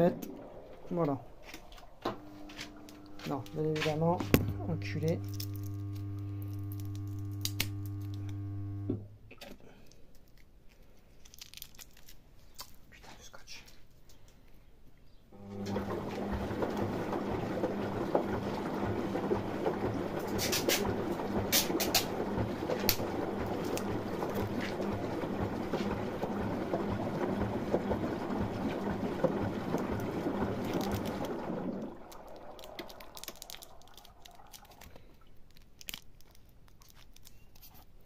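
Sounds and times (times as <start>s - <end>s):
water running in washing machine: 0.0s - 9.0s, 15.4s - 35.2s
electric hum: 0.0s - 9.3s, 15.4s - 33.5s.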